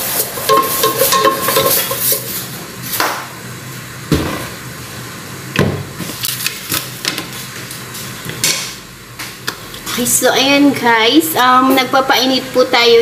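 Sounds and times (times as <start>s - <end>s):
kitchenware knocking: 0.4s - 2.4s.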